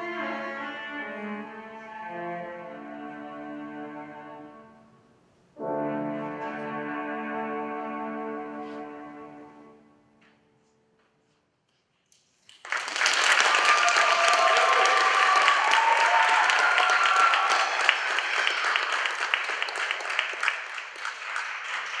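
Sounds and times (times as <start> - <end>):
audience applauding: 12.5 - 22.0
voices cheering: 13.2 - 19.6.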